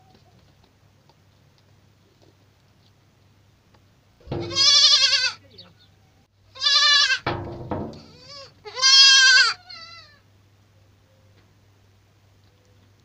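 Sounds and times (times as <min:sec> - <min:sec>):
goat kids bleating: 0:04.3 - 0:05.5, 0:06.5 - 0:07.3, 0:08.0 - 0:10.3.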